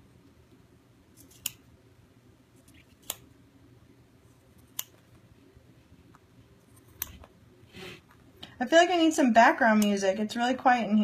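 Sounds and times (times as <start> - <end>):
scissors snipping fabric: 1.2 - 1.6, 2.6 - 3.3, 4.6 - 5.0, 6.7 - 7.3.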